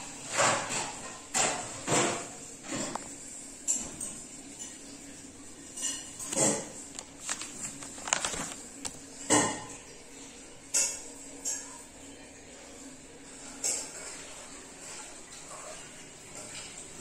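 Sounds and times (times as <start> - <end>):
notebook pages rustling: 6.3 - 9.1.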